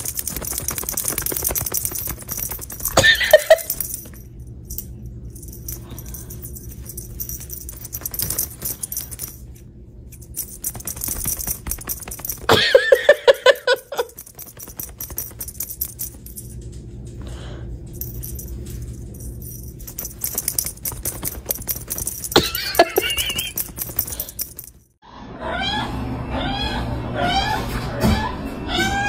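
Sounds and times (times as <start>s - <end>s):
small bell jingling: 0.0s - 16.8s, 17.9s - 25.0s.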